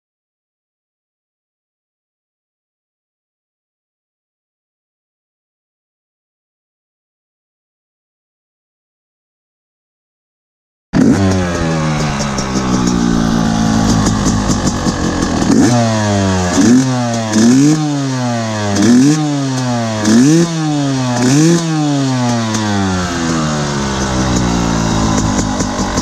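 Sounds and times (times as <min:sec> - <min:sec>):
dirt bike engine idling and revving: 0:11.0 - 0:26.0.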